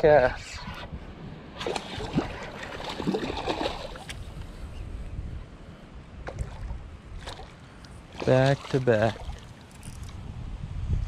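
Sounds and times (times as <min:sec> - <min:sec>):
fish splashing at water surface: 0:01.6 - 0:04.2.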